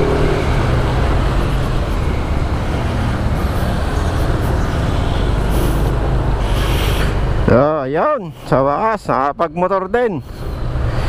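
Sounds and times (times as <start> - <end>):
scooter engine running: 0.0 - 6.3
road and traffic noise: 0.0 - 11.0.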